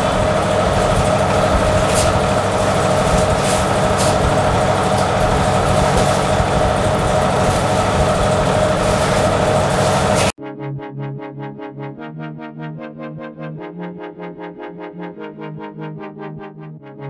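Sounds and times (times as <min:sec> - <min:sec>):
steady machine hum: 0:00.0 - 0:10.4.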